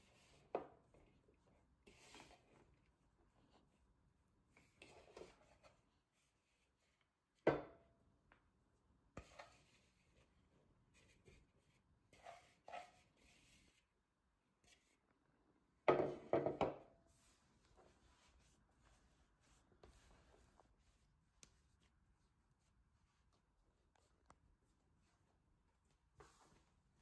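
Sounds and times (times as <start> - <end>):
dough rubbing and squishing: 0.0 - 7.4, 17.0 - 27.0.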